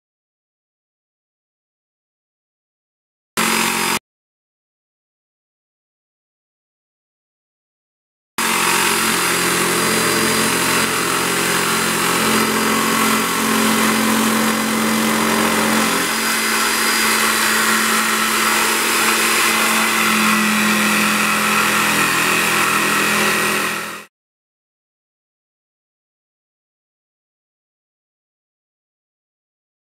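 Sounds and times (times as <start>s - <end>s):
electric jigsaw cutting wood: 3.4s - 4.0s, 8.4s - 24.1s.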